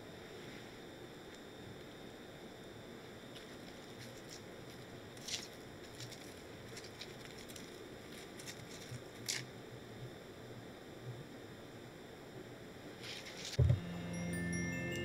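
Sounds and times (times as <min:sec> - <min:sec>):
mint leaves rustling: 0:03.2 - 0:09.5, 0:12.9 - 0:14.9.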